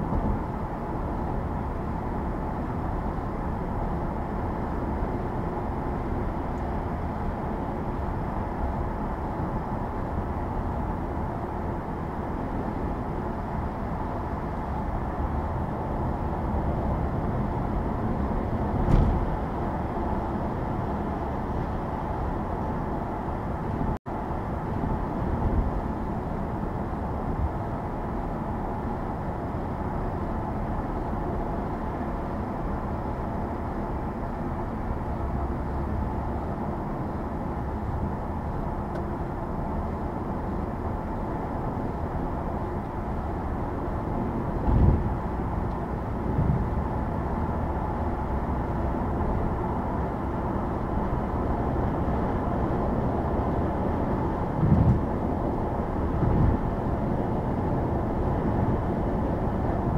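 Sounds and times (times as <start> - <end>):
tyre and road noise: 14.7 - 27.7, 31.0 - 59.9.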